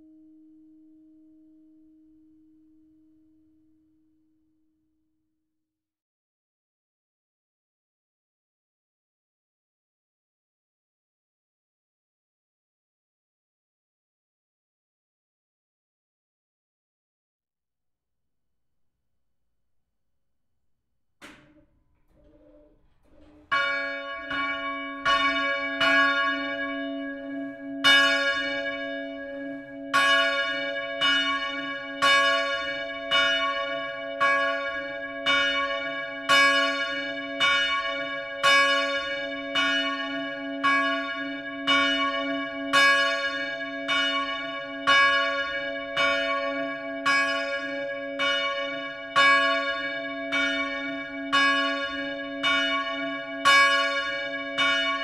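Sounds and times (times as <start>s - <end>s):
church bell ringing: 22.4s - 55.0s.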